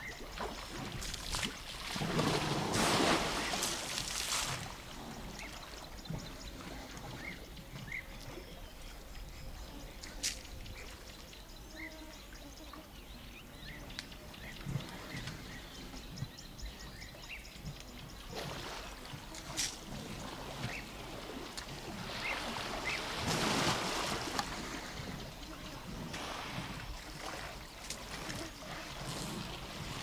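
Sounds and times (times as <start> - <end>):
water sloshing and trickling: 0.0 - 9.4, 17.5 - 30.0
elephants splashing in water: 0.2 - 7.4, 18.3 - 30.0.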